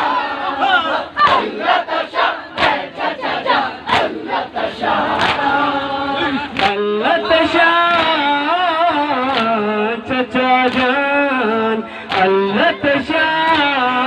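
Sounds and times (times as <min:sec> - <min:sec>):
mourners chanting together: 0:00.0 - 0:14.0
rhythmic chest-beating: 0:00.0 - 0:14.0
man singing a lament over speakers: 0:05.4 - 0:14.0.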